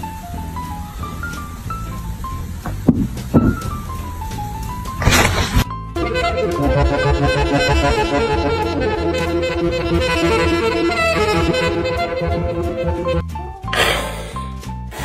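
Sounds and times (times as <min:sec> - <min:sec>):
background music with bass line: 0:00.0 - 0:15.0.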